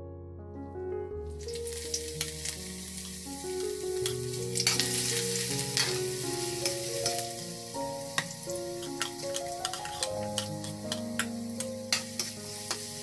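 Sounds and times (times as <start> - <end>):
food sizzling in hot oil: 1.2 - 13.0
spatula scraping and tapping pan: 4.0 - 6.0, 8.2 - 13.0.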